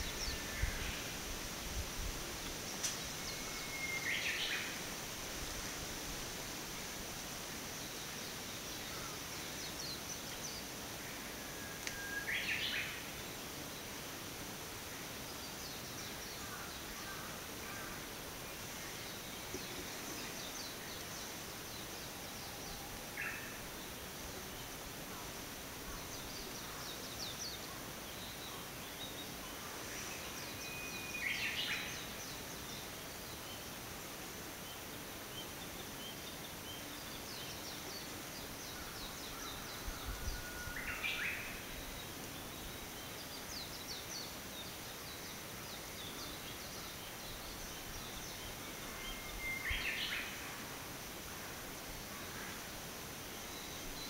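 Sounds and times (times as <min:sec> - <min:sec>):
steady hiss: 0:00.0 - 0:54.0
faint high bird chirps: 0:02.8 - 0:04.6.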